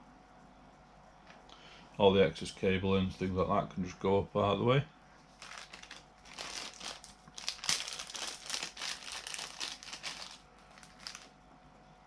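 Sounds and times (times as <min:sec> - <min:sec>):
plastic bag crinkling: 0:05.3 - 0:11.3.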